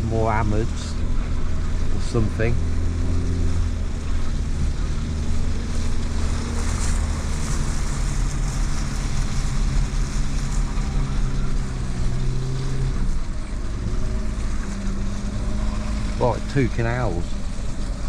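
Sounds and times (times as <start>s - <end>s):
car engine running: 0.0s - 18.0s.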